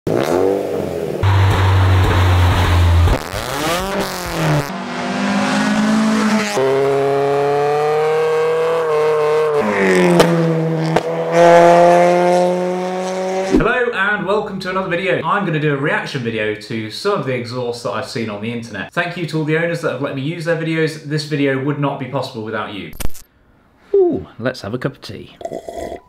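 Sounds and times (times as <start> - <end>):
car engine exhaust revving: 0.1 - 13.7.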